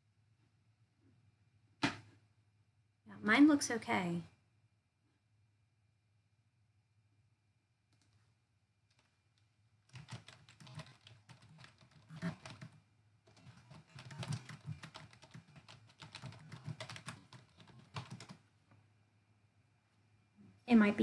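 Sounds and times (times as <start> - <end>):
typing on computer keyboard: 9.9 - 18.4.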